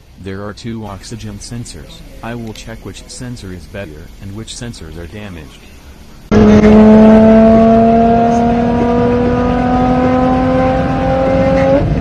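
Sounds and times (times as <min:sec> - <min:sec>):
car engine at high revs: 0:06.2 - 0:12.0.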